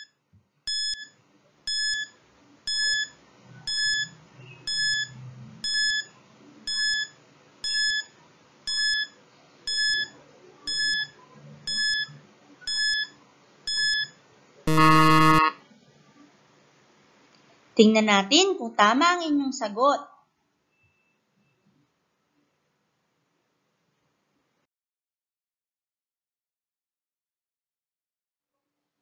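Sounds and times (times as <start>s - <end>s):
countdown timer beeping: 0.7s - 1.1s, 1.7s - 2.1s, 2.7s - 6.1s, 6.7s - 8.1s, 8.7s - 13.1s, 13.7s - 14.1s, 14.7s - 15.6s
loud buzzer: 14.7s - 15.6s.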